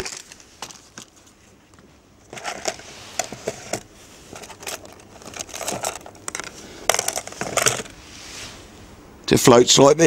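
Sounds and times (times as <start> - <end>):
rustling: 0.0 - 8.8
tackle rattling in plastic tray: 4.4 - 7.9.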